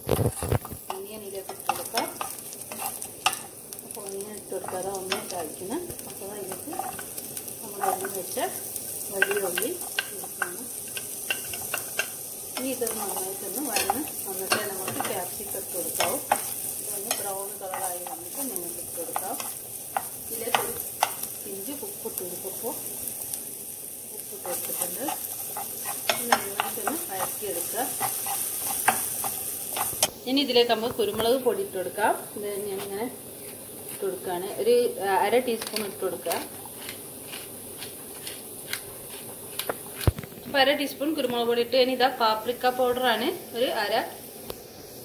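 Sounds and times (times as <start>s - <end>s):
garlic and onion sizzling in a pan: 0.0s - 45.0s
spatula tapping and scraping a pan: 0.1s - 3.6s, 4.6s - 21.4s, 24.4s - 30.2s, 35.6s - 40.2s.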